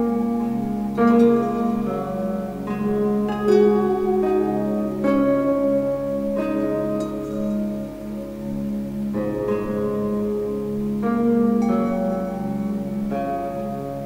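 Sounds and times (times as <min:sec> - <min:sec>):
instrumental background music: 0:00.0 - 0:14.0.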